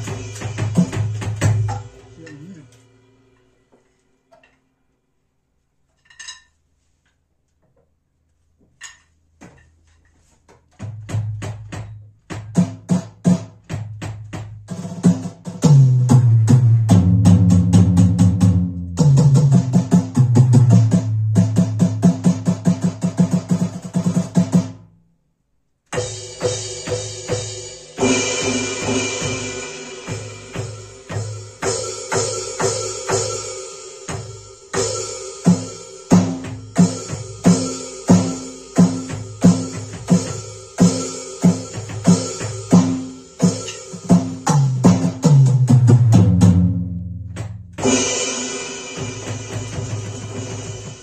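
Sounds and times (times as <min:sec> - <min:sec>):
electronic drum kit drumming: 0:00.0 - 0:03.4, 0:10.7 - 0:24.8, 0:25.9 - 0:51.0
backing music: 0:26.0 - 0:51.0.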